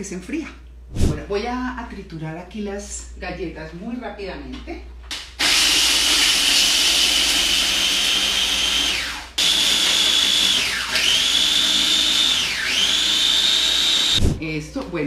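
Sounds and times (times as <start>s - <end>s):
electric food chopper whirring: 5.1s - 14.4s.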